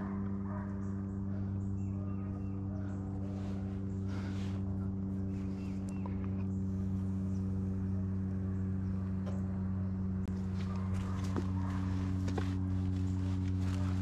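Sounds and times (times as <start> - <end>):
footsteps crunching in dry grass: 10.3 - 14.0.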